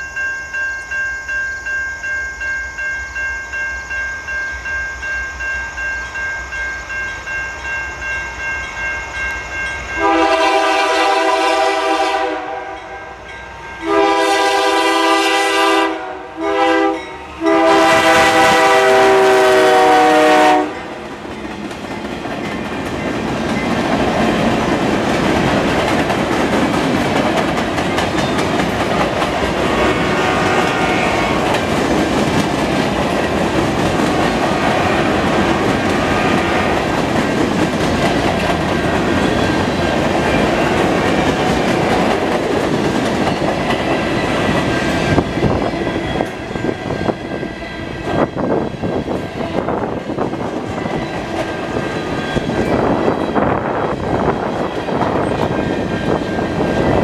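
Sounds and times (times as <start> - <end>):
freight train rumble: 4.2 - 57.0
train wheels clacking on rail joints: 21.1 - 47.4.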